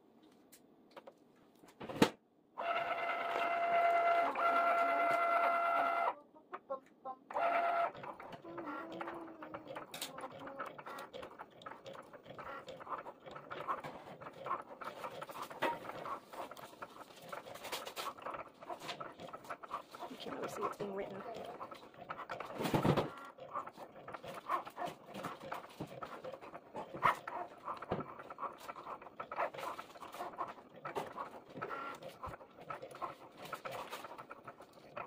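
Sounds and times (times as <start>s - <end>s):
cutting machine motor whine: 2.6s - 6.2s.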